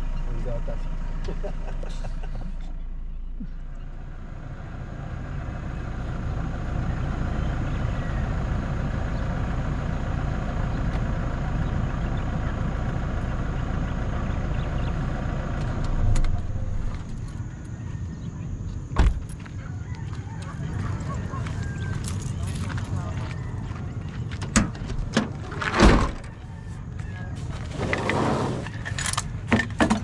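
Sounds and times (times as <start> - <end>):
truck engine idling: 0.0 - 30.0
car door opening clunk: 19.0 - 19.4, 24.4 - 26.3.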